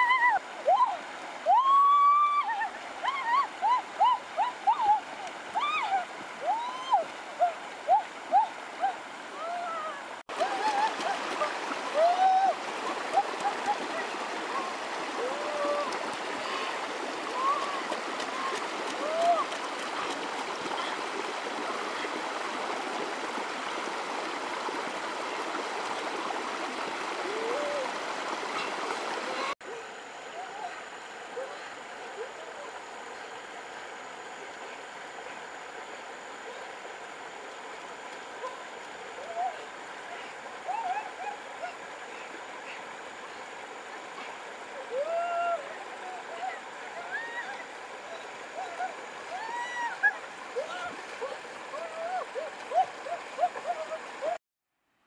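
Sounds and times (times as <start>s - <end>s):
stream water running over rocks: 0.0s - 54.4s.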